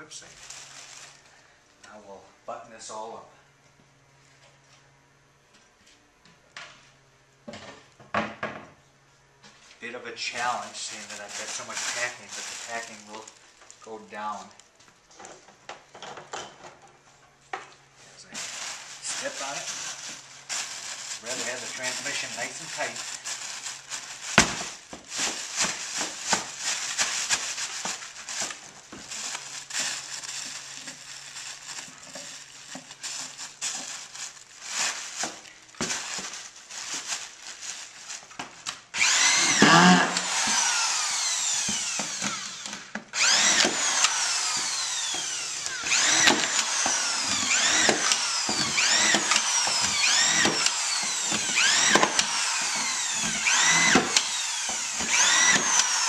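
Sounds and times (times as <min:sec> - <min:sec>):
electric drill running: 0:18.8 - 0:24.5, 0:38.9 - 0:56.0.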